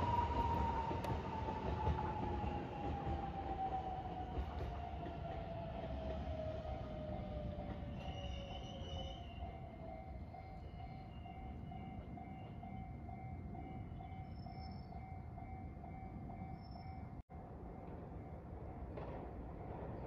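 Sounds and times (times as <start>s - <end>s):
level crossing warning bell ringing: 6.5s - 20.0s.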